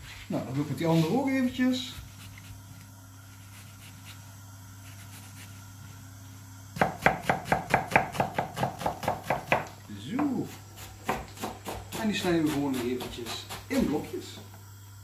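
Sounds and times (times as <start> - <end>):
knife chopping on cutting board: 6.8 - 14.0.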